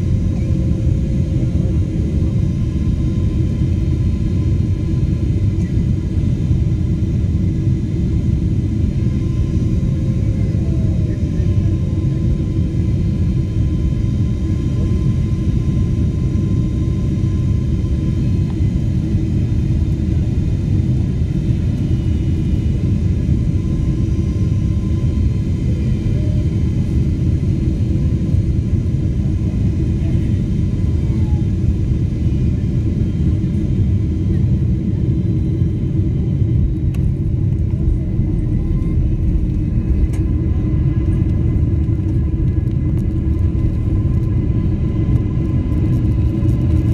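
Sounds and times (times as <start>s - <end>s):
low rumble of engines and airflow: 0.0s - 46.9s
faint whine tones: 30.0s - 46.7s.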